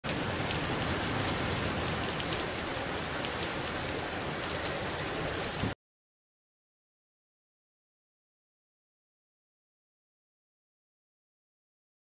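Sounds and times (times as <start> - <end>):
raindrops ticking nearby: 0.0 - 5.8
steady rain hiss: 0.0 - 5.8.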